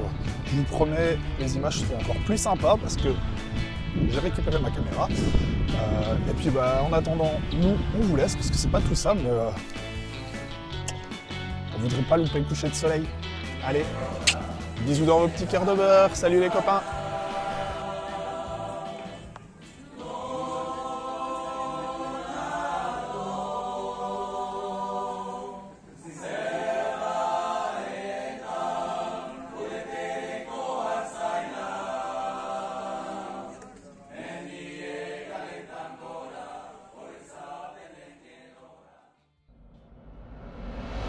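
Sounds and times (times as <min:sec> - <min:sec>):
men singing a cappella in harmony: 0:13.7 - 0:19.3, 0:20.0 - 0:33.6, 0:34.2 - 0:39.1.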